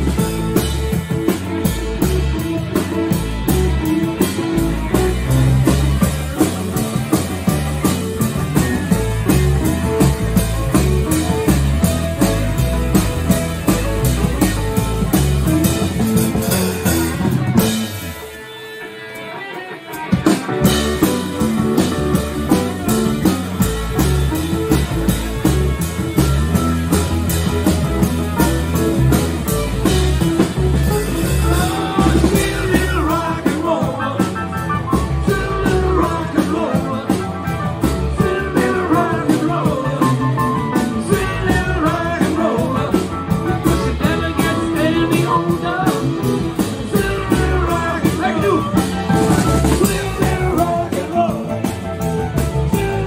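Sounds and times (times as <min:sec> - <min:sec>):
bass guitar: 0:00.0 - 0:53.0
drum kit: 0:00.0 - 0:53.0
electric guitar: 0:00.0 - 0:53.0
person singing: 0:31.0 - 0:53.0.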